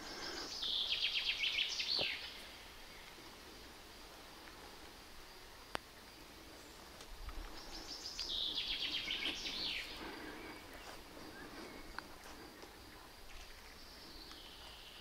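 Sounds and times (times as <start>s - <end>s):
songbird trilling: 7.6s - 11.9s.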